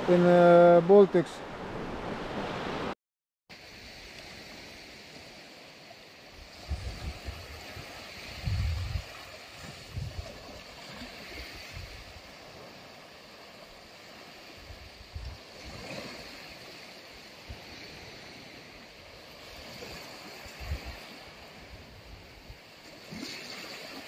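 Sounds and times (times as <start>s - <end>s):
sea waves washing on beach: 0.0s - 24.0s
wind buffeting microphone: 6.4s - 12.5s, 14.6s - 16.5s, 19.6s - 22.6s.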